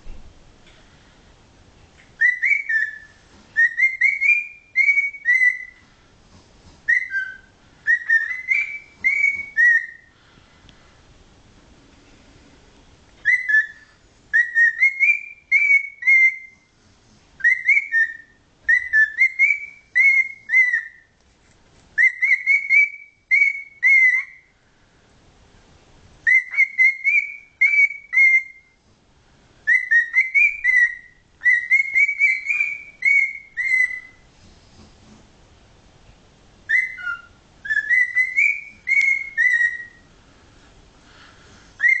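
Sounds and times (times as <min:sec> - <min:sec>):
cockatiel whistling: 0:02.2 - 0:05.8, 0:06.8 - 0:10.1, 0:13.2 - 0:16.7, 0:17.4 - 0:21.1, 0:22.0 - 0:24.5, 0:26.2 - 0:28.8, 0:29.6 - 0:34.2, 0:36.7 - 0:40.1, 0:41.8 - 0:42.0.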